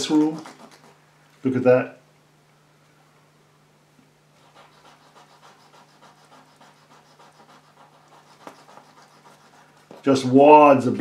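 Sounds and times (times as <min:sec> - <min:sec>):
cotton bud scrubbing painting: 0:00.0 - 0:01.0, 0:04.4 - 0:10.5.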